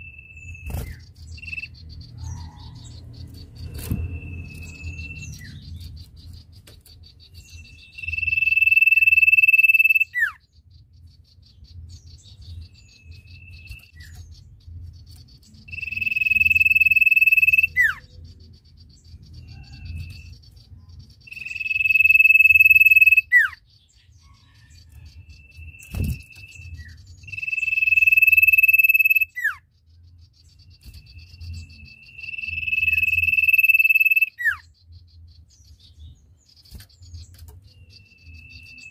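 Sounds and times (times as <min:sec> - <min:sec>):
bird whistling call: 0:07.8 - 0:10.4, 0:15.7 - 0:18.0, 0:25.7 - 0:29.6, 0:31.9 - 0:34.7
insect-like trilling: 0:15.7 - 0:18.0, 0:27.3 - 0:29.5, 0:32.2 - 0:34.6.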